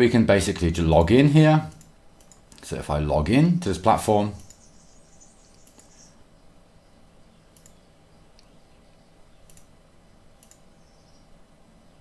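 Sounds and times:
low room hum: 0:00.0 - 0:12.0
keyboard and mouse clicks: 0:01.7 - 0:02.7, 0:05.5 - 0:06.0, 0:07.5 - 0:08.5, 0:09.4 - 0:09.7, 0:10.4 - 0:10.7.

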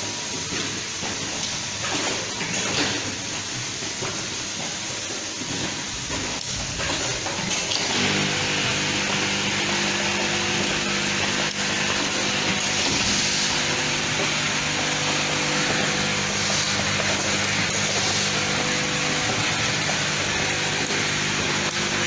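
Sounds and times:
vibratory bowl feeders humming: 0:00.0 - 0:22.0.

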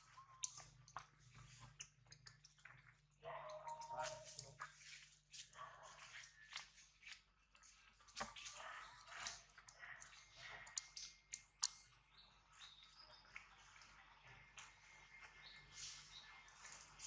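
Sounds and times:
sharp little ticks and clicks: 0:09.2 - 0:12.0.

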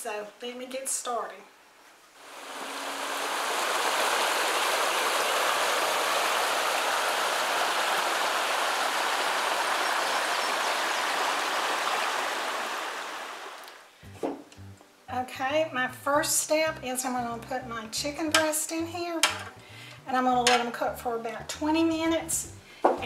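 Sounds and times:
creek water flowing: 0:02.2 - 0:13.9.

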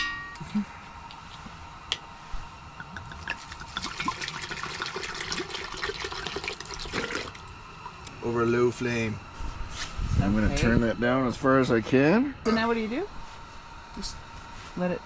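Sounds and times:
wine pouring into a pot: 0:02.8 - 0:08.0.

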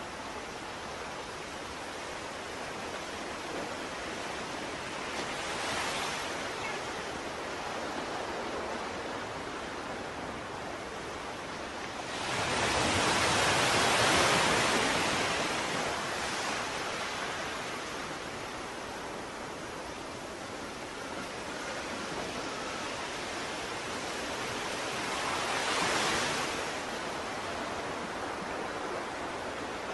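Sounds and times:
ocean surf washing: 0:00.0 - 0:29.9.

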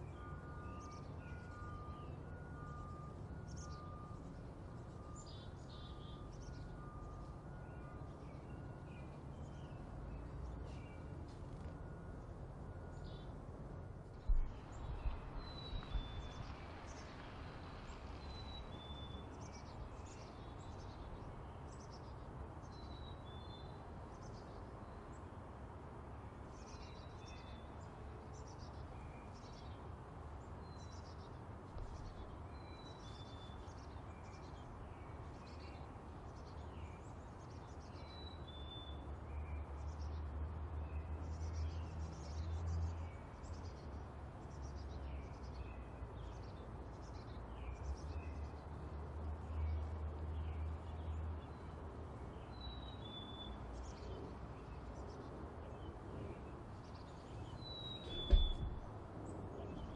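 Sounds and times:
low thump: 0:58.0 - 0:59.2.

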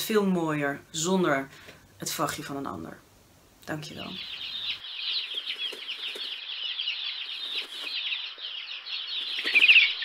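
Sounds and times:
small birds twittering: 0:03.7 - 0:10.0.

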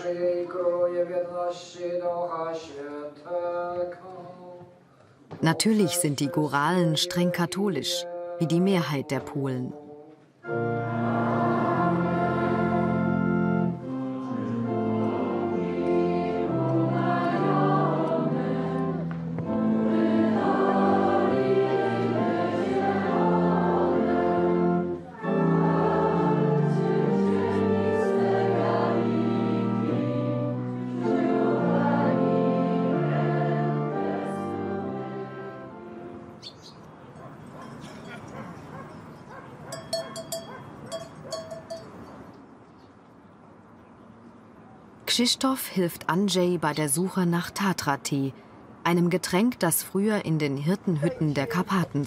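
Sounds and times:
congregation singing a hymn: 0:00.0 - 0:04.6, 0:05.4 - 0:36.2.

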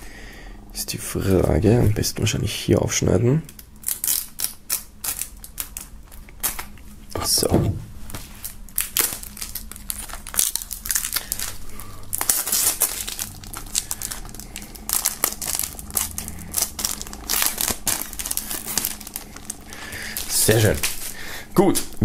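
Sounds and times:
plastic film crinkling: 0:03.4 - 0:06.9, 0:08.0 - 0:22.0.

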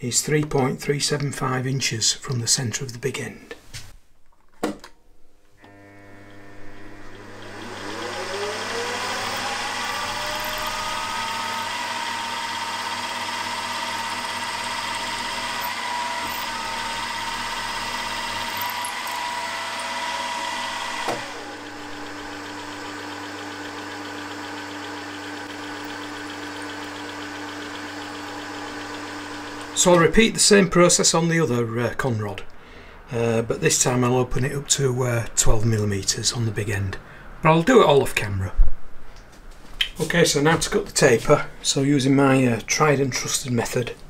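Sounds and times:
low steady hum: 0:04.1 - 0:11.4
milling machine spindle whine: 0:05.7 - 0:30.0
drill boring aluminium: 0:06.8 - 0:29.8.

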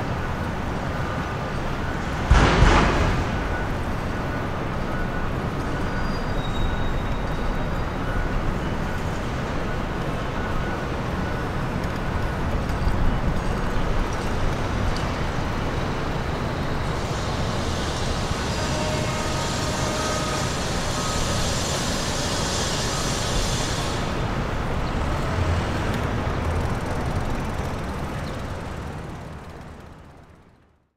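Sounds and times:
traffic rumble: 0:00.0 - 0:30.7
high hiss: 0:17.0 - 0:24.2.

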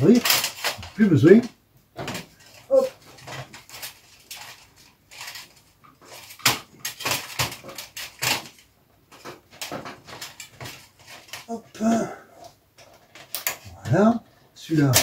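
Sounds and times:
hands working wires clicking: 0:00.0 - 0:15.0.

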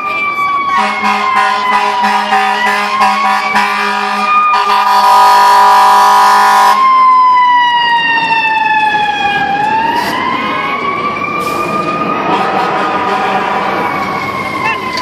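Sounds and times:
wailing siren: 0:00.0 - 0:15.0
fire engine air horn: 0:00.6 - 0:06.9, 0:11.4 - 0:14.8.

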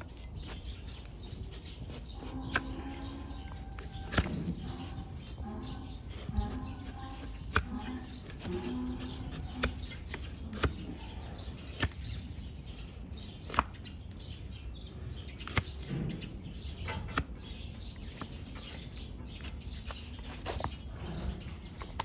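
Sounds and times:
blade scraping hoof: 0:00.4 - 0:12.2
blade cutting hoof horn: 0:00.4 - 0:13.9, 0:15.3 - 0:18.3.

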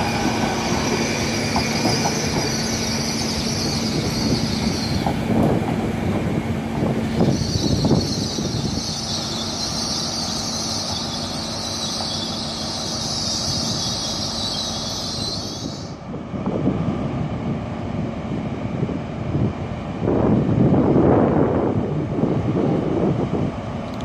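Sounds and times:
train wheels squealing: 0:00.0 - 0:05.2, 0:07.1 - 0:16.0
low train rumble: 0:00.0 - 0:24.0
wind on microphone: 0:03.4 - 0:09.3, 0:16.0 - 0:23.8.

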